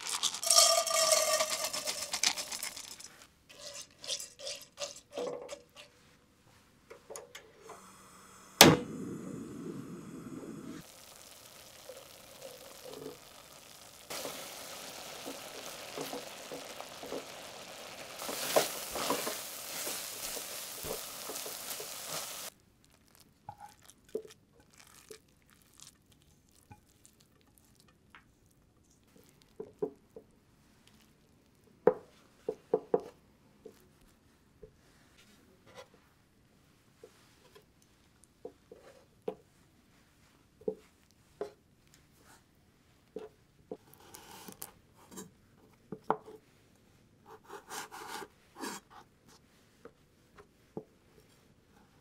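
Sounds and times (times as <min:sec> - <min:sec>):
rice and water sloshing in metal bowl: 0:00.0 - 0:06.1, 0:10.8 - 0:22.5
metal spoon scraping and tapping: 0:00.3 - 0:06.0.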